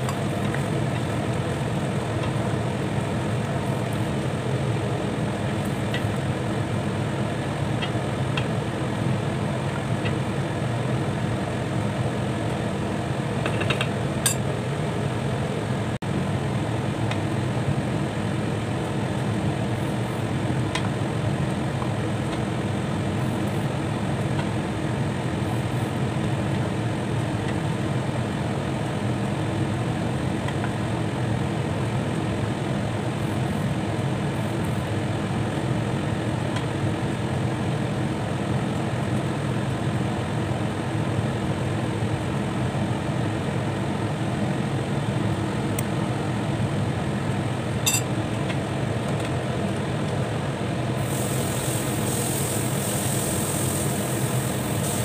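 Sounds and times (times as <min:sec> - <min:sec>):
light metallic clink: 0:47.9 - 0:48.1.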